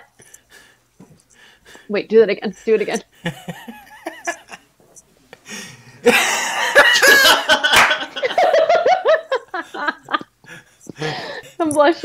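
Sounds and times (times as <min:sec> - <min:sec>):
people laughing: 0:02.7 - 0:04.6, 0:05.5 - 0:11.6.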